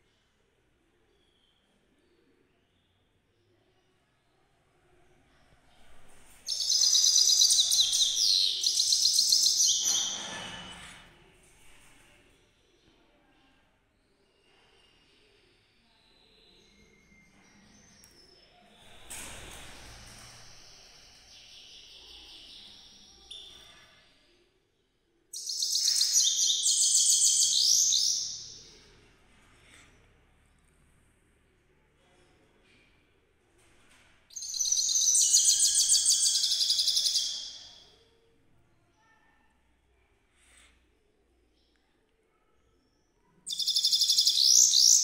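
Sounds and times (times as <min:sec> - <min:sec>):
goldfinch twittering song: 0:06.5 - 0:10.1
finch twittering song: 0:06.5 - 0:10.2, 0:25.4 - 0:28.7, 0:34.3 - 0:37.8, 0:43.5 - 0:45.0.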